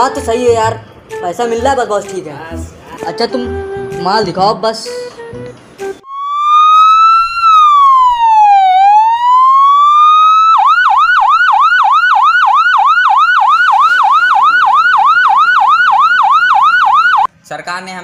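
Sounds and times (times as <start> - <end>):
electronic police siren: 6.0 - 17.3.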